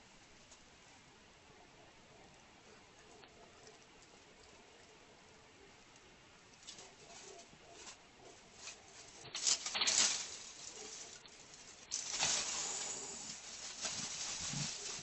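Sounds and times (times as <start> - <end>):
dry leaves rustling under cat: 6.6 - 15.0.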